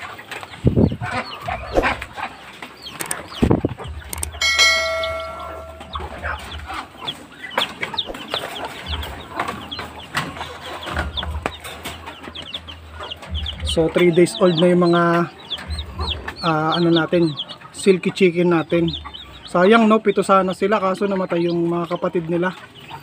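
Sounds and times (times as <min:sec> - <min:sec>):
chickens clucking: 0:00.0 - 0:23.0
chicks peeping: 0:00.0 - 0:23.0
bell-like ding: 0:04.4 - 0:06.2.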